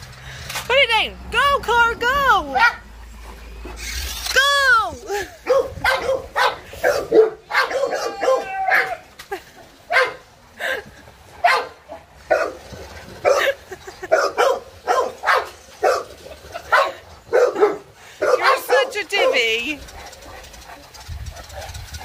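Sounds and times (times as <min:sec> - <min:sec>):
dogs barking: 0:02.5 - 0:02.9, 0:05.4 - 0:09.0, 0:09.9 - 0:10.3, 0:11.4 - 0:22.0
dog drawn-out cry: 0:05.4 - 0:09.1.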